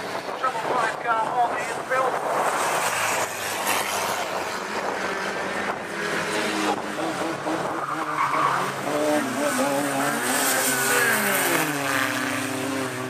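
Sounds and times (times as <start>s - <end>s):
race car engines revving: 0.0s - 13.0s.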